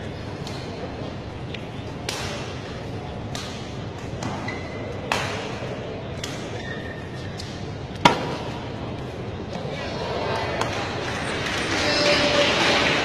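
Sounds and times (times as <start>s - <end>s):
racket hitting shuttlecock: 2.0s - 2.6s, 3.3s - 6.7s, 7.4s - 8.6s.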